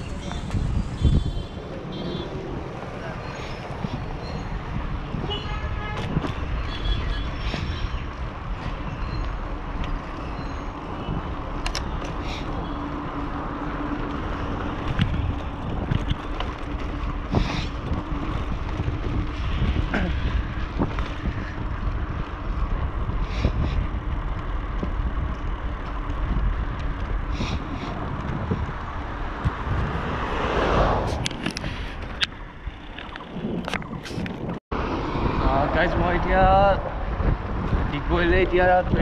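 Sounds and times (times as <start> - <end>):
low road rumble: 0.0 - 39.0
wind buffeting microphone: 0.0 - 39.0
bicycle clicks and rattles: 6.0 - 29.9, 31.1 - 34.6.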